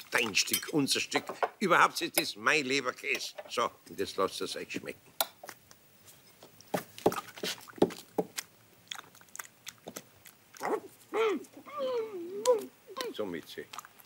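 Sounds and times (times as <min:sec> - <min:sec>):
cat chewing and smacking: 0:07.5 - 0:10.6.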